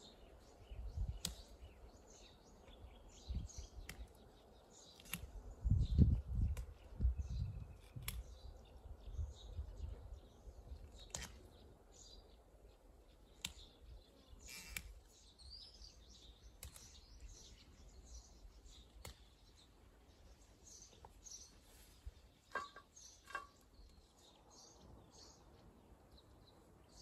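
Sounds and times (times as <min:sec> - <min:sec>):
birds chirping faintly: 0:00.0 - 0:27.0
garlic scapes snapping: 0:01.2 - 0:01.5, 0:03.8 - 0:04.1, 0:05.0 - 0:05.3, 0:07.8 - 0:08.3, 0:13.3 - 0:13.7, 0:16.5 - 0:17.0, 0:18.9 - 0:19.4.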